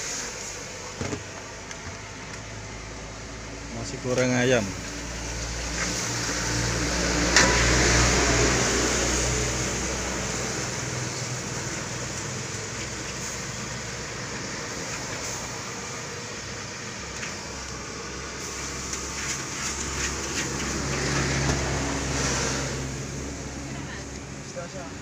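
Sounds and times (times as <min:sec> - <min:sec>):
food sizzling in a wok: 0:00.0 - 0:00.9, 0:04.8 - 0:23.6
gas burner noise: 0:00.0 - 0:25.0.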